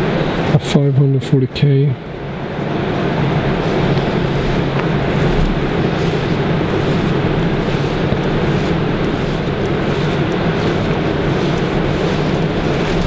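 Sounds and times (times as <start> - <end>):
low hum: 1.9 - 13.0
rushing drone: 2.0 - 13.0.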